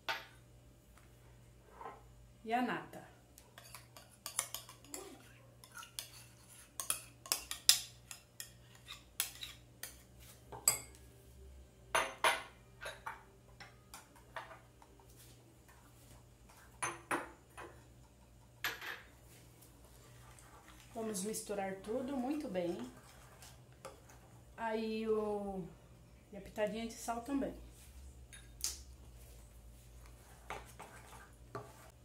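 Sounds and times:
metal spoon scraping glass bowl: 3.6 - 10.0
glassware clinking on stone countertop: 11.9 - 13.8, 16.8 - 17.7, 18.6 - 19.1.

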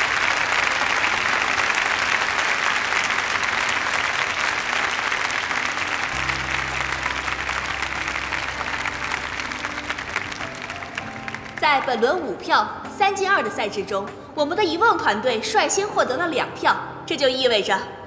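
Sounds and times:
audience applauding: 0.0 - 11.8
background music: 0.0 - 18.0.

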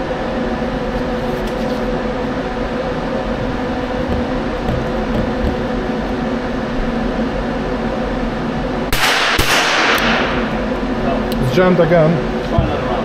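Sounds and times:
mechanical hum: 0.0 - 13.0
submachine gun shots: 8.9 - 10.2.

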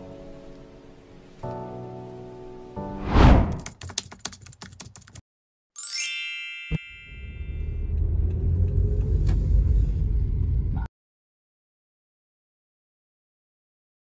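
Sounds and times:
whoosh: 3.0 - 3.6
rapid clicks like typing: 3.5 - 5.2
bright ringing chime: 5.8 - 7.9.

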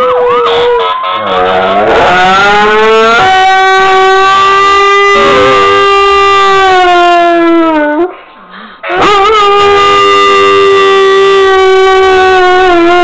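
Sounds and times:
fire truck siren: 0.0 - 7.8
dog howling: 1.3 - 8.1, 8.9 - 13.0.

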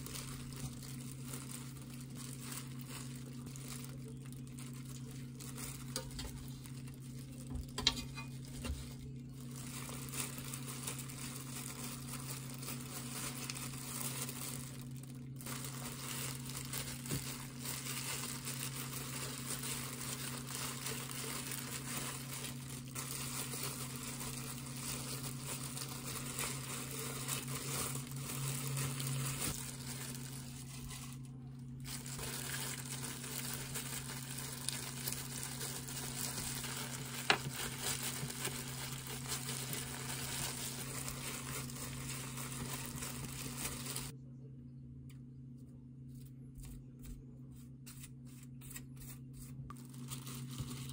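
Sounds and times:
plastic gloves crinkling: 0.0 - 44.2, 47.6 - 50.9
steady low hum: 0.0 - 50.9.

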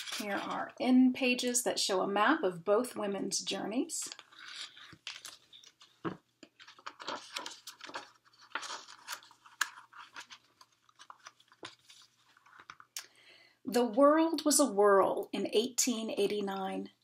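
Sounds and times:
book pages rustling: 0.0 - 0.6, 4.1 - 13.0.

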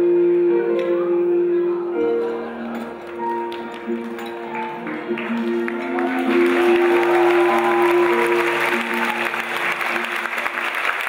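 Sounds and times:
music with long held notes: 0.0 - 11.0
audience applause: 3.0 - 11.0.

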